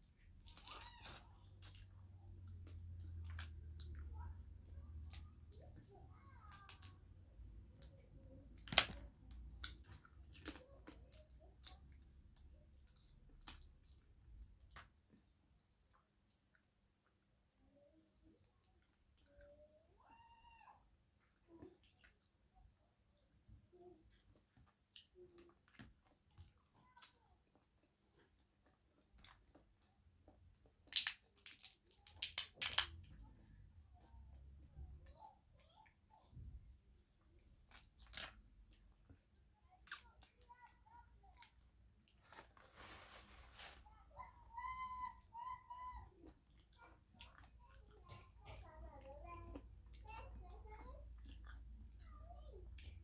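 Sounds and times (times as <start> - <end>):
chewing and mouth sounds: 9.3 - 14.8, 37.2 - 40.5, 46.2 - 53.0
shells clicking and cracking: 30.9 - 33.0.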